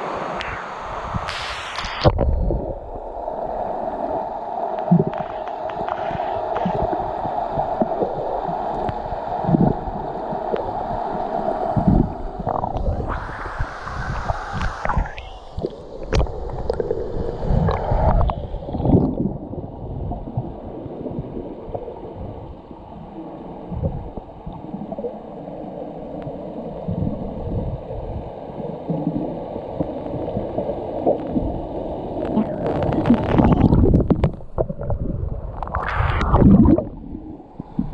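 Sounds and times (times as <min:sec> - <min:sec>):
water gurgling: 0:00.0 - 0:37.9
waterfall rushing: 0:12.5 - 0:16.2.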